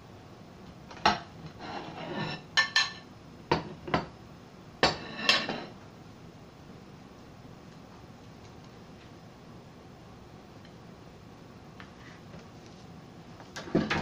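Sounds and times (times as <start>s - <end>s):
dishes and utensils clinking: 1.0s - 4.1s, 4.8s - 5.8s
scraping on dishes: 1.1s - 3.8s, 4.8s - 5.8s.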